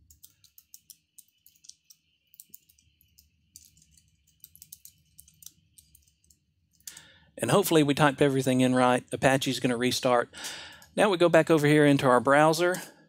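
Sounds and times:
computer keyboard typing: 0.0 - 7.1.

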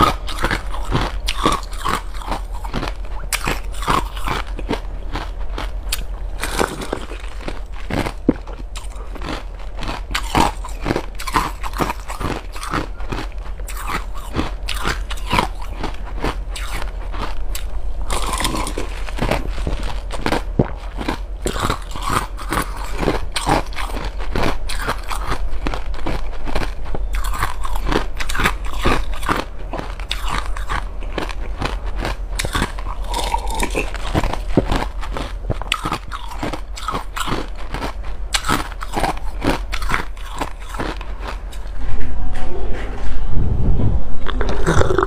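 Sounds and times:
crackly mouth clicks: 0.0 - 41.7
slurping and gulping drink: 44.3 - 45.0.

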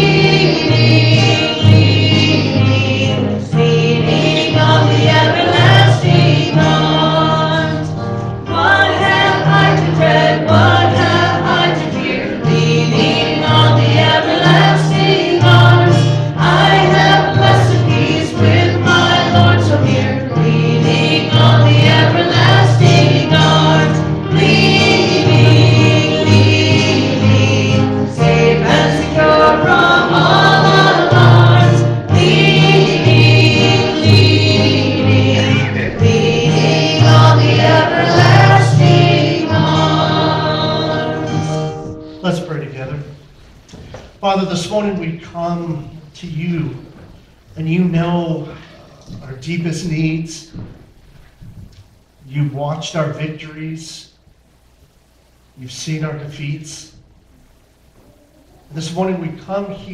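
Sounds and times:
choir singing: 0.0 - 42.0
instrumental accompaniment: 0.0 - 42.3.

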